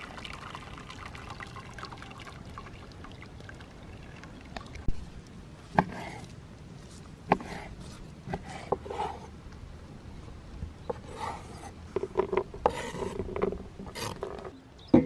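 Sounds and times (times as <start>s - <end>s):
knife scraping across wood: 5.8s - 6.3s, 6.9s - 9.3s, 10.9s - 14.6s.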